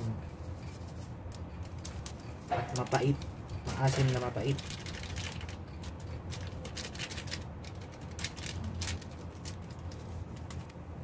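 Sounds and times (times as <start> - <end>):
steady low hum: 0.0 - 11.0
light clicks and rustles: 0.4 - 10.8.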